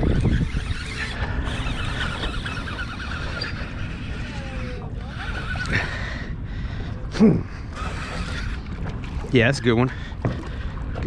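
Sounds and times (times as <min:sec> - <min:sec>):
fishing reel gears whirring: 0:00.0 - 0:06.4, 0:07.4 - 0:09.6
water noise: 0:00.0 - 0:11.0
wind: 0:00.0 - 0:11.0
short falling squeals: 0:00.2 - 0:04.1.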